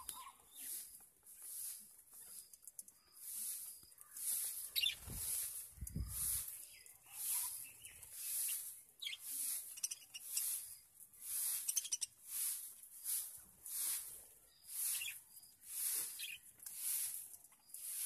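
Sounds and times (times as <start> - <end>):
budgerigars chirping and chattering: 3.2 - 17.0.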